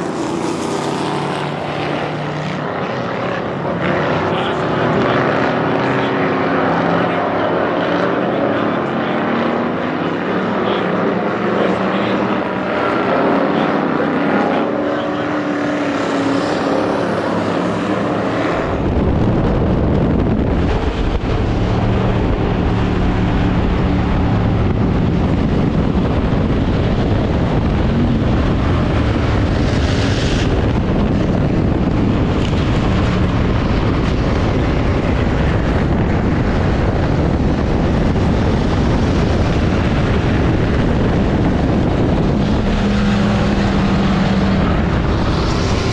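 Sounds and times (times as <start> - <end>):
race cars passing: 0.0 - 45.9
road and wind noise: 0.0 - 45.9
loud engine rumble inside car: 18.6 - 45.9.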